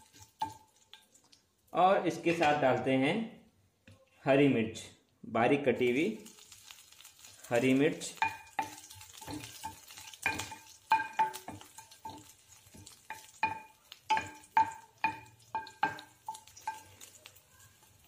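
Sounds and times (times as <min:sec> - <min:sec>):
oil sizzling: 0:00.0 - 0:02.9, 0:05.7 - 0:18.0
spatula knocking ringing pan: 0:00.1 - 0:00.7, 0:08.2 - 0:17.9.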